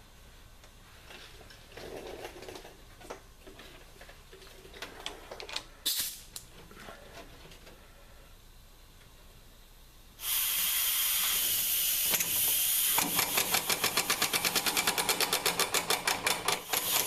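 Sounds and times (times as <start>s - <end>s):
short sharp air hiss: 5.8s - 6.4s, 10.2s - 13.9s.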